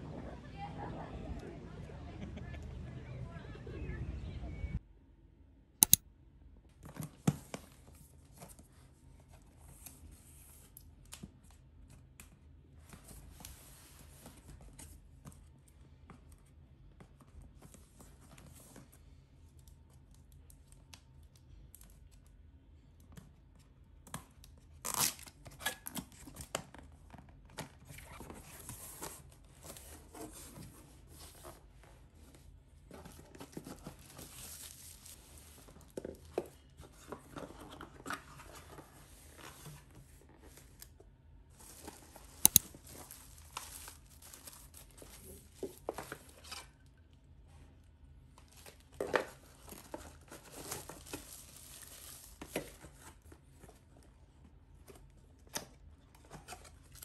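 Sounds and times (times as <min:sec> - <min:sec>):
paper wrapping rustling and tearing: 0:33.2 - 0:35.9, 0:41.6 - 0:46.5, 0:48.5 - 0:53.3.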